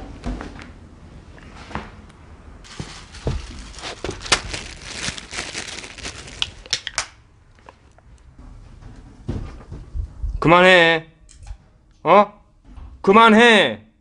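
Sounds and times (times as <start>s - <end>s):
rustling and crackling: 2.6s - 10.2s.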